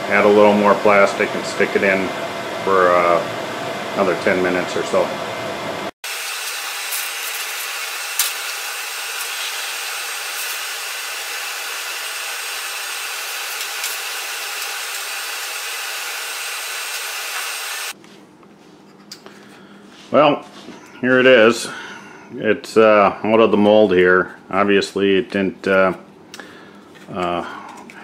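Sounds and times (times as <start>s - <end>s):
blower hissing: 0.0s - 18.0s.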